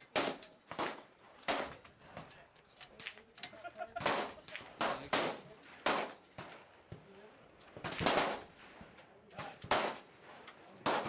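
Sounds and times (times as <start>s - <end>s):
rifle shots: 0.1s - 1.8s, 4.0s - 6.8s, 7.8s - 11.0s
faint distant shots: 4.0s - 7.0s, 7.7s - 11.0s.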